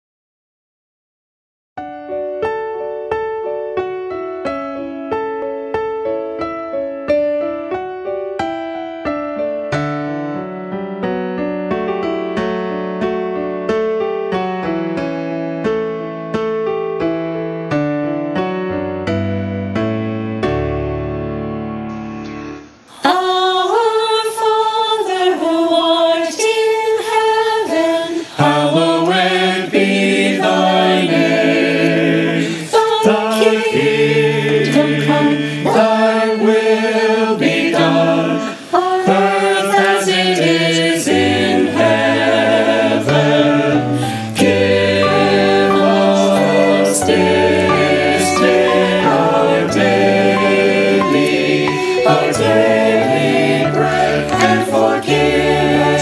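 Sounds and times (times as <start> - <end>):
piano: 1.8 - 56.0
choir singing a cappella: 22.9 - 56.0.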